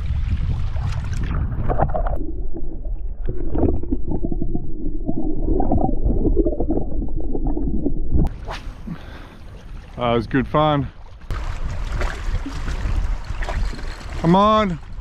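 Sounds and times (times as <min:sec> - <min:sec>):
water splashing: 0:00.0 - 0:15.0
muffled underwater gurgling: 0:01.2 - 0:08.3.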